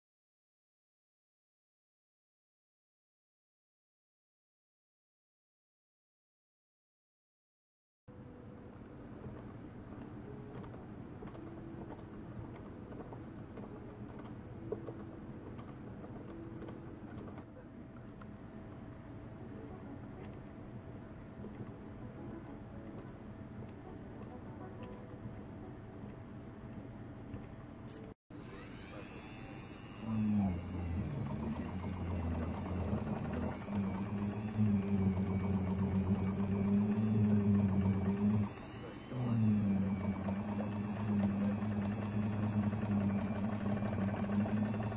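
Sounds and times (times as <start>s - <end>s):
rotary tool whirring: 27.9s - 44.9s.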